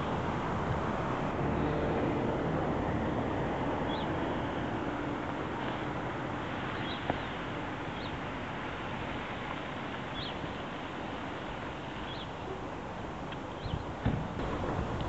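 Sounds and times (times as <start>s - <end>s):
outdoor background noise: 0.0s - 15.0s
faint high bird calls: 6.7s - 8.2s, 10.1s - 10.4s, 12.0s - 12.4s.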